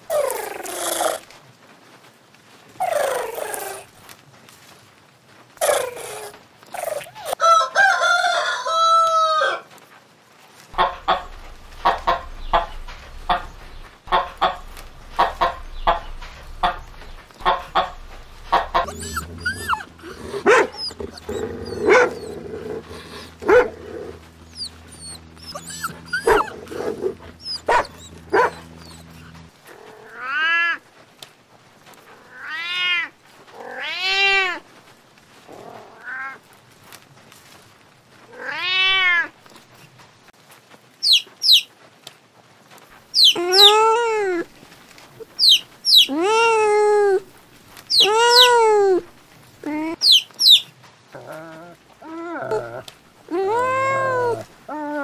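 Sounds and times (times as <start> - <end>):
low hum: 10.7 - 29.7
cat meowing: 10.8 - 30.8, 38.3 - 39.3, 43.2 - 44.5, 45.2 - 50.6, 51.2 - 55.0
kitten mewing: 10.8 - 30.8, 43.2 - 44.5, 45.2 - 50.6, 51.2 - 55.0.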